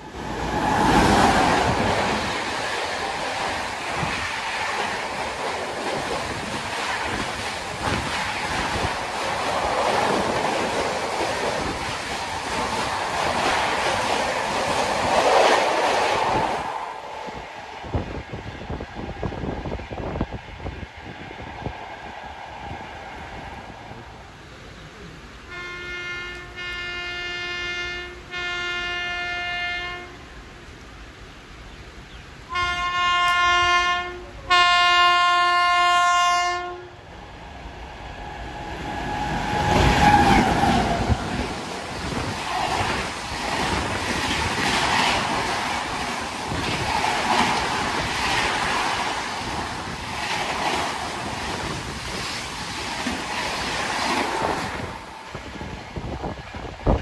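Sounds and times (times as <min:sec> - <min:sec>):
train rushing past: 0:00.0 - 0:30.4, 0:32.4 - 0:57.0
locomotive horn blasts: 0:25.5 - 0:30.3, 0:32.5 - 0:37.0.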